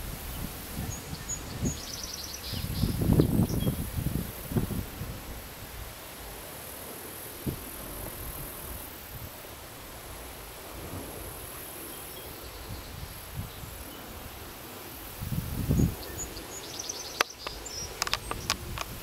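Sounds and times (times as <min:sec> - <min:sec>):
sharp clicks: 0:17.2 - 0:19.0.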